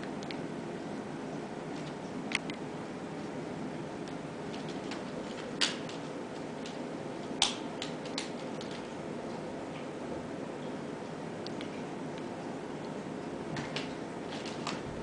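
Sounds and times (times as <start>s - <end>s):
steady low hum: 0.0s - 15.0s
claws clicking on wicker: 4.5s - 9.0s.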